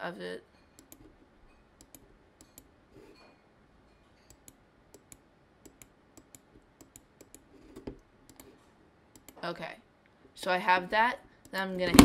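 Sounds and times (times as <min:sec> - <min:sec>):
computer mouse clicking: 0:00.8 - 0:01.1, 0:01.8 - 0:02.7, 0:04.3 - 0:09.4.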